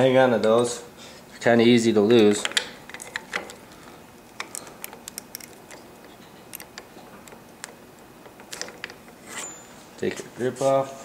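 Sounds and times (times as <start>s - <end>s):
plastic and metal parts clicking: 4.3s - 9.0s.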